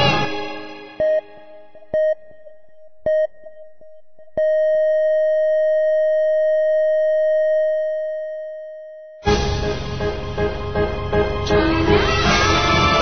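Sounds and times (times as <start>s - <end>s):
heart monitor flatline tone: 0.9s - 9.2s
heart monitor beep: 1.0s - 9.2s.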